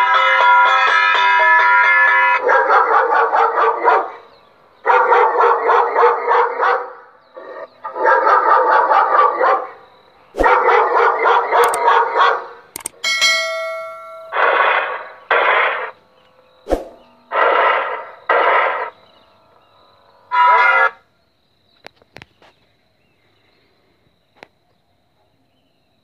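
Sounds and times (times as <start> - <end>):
dog barking over loudspeaker: 0.1 - 12.7, 20.3 - 21.0
steady electronic tone: 16.6 - 20.3.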